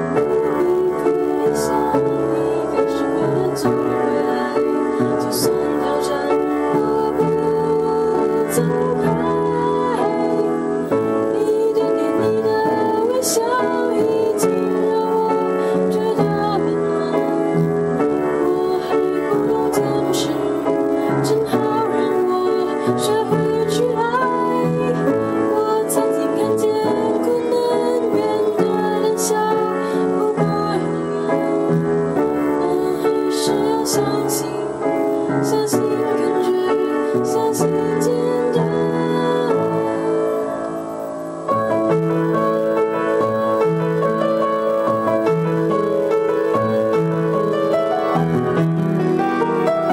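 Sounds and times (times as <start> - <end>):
keyboard chords: 0.0 - 49.9
person singing: 0.0 - 49.9.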